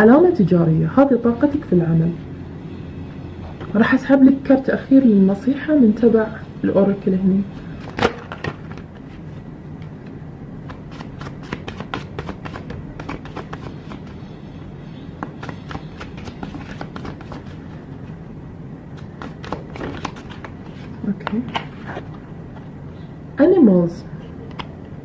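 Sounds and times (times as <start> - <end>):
steady low hum: 0.0 - 25.0
cards being shuffled by hand: 7.6 - 9.4, 10.6 - 14.4, 15.2 - 17.8, 19.0 - 22.7.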